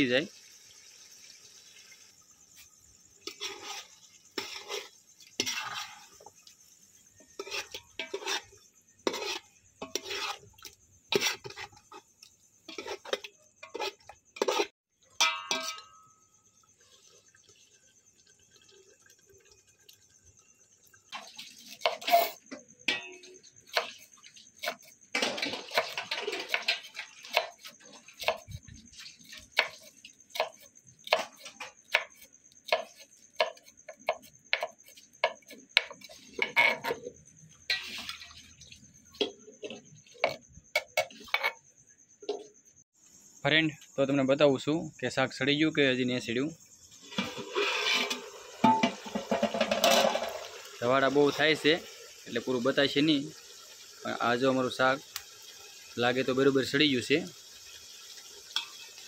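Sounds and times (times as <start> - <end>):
metal spoon scraping pot: 3.2 - 6.3, 7.2 - 12.1, 12.7 - 16.1, 21.1 - 28.4, 35.8 - 41.6, 47.0 - 50.5.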